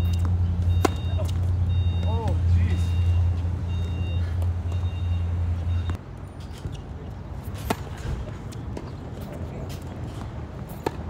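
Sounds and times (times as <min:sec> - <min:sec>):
racket hitting tennis ball: 0:00.0 - 0:01.5, 0:07.4 - 0:09.0, 0:09.7 - 0:11.0
vehicle engine humming: 0:00.0 - 0:11.0
short high beeps: 0:00.1 - 0:06.0.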